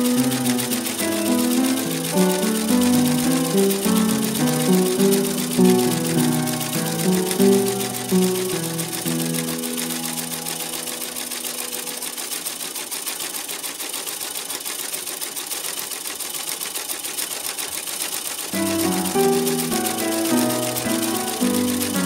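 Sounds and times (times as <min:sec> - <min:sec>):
sewing machine stitching: 0:00.0 - 0:22.0
background music: 0:18.6 - 0:22.0.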